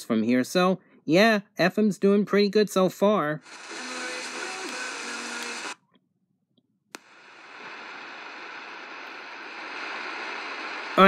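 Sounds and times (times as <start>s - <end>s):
radio static hiss: 3.4s - 5.8s, 7.0s - 11.0s
radio switch click: 3.5s - 5.8s, 7.0s - 10.9s.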